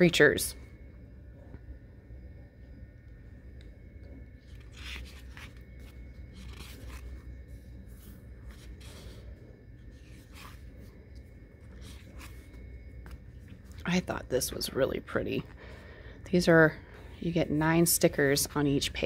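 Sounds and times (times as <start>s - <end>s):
book pages turning: 4.4s - 13.8s.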